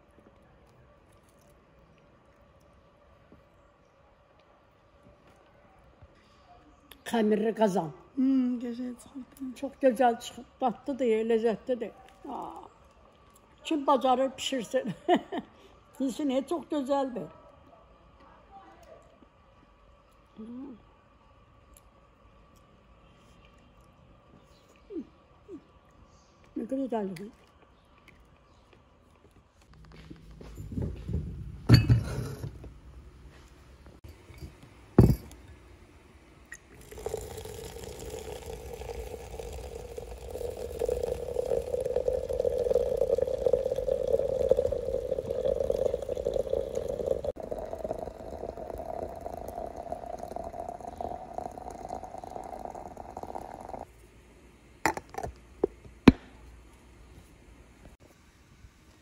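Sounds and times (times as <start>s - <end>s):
light glass clinks: 31.7s - 32.5s
glass knocks: 35.0s - 35.4s
hot water pouring into teapot: 36.6s - 53.9s.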